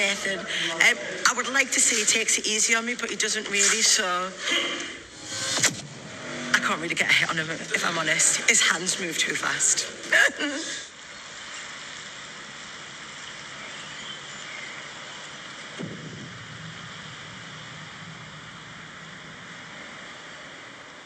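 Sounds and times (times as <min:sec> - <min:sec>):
steady rushing hiss: 0:00.0 - 0:21.0
low hum: 0:04.5 - 0:10.1, 0:15.6 - 0:21.0.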